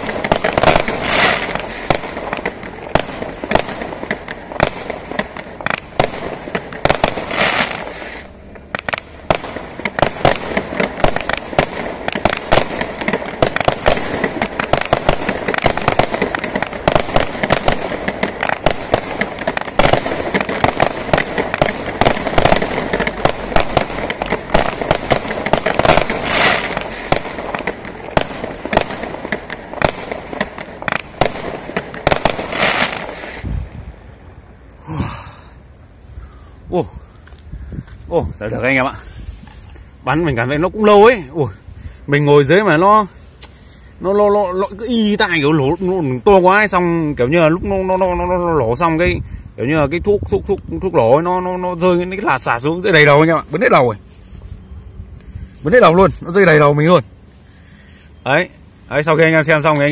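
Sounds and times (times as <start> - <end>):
loud firework bangs: 0.0 - 33.9
firework crackle: 0.0 - 59.9.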